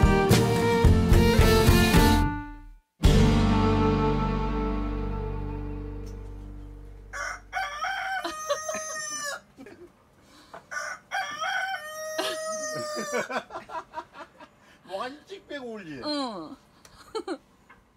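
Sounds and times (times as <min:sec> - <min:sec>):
background music: 0:00.0 - 0:07.2
rooster crowing: 0:07.1 - 0:09.5, 0:10.7 - 0:13.4.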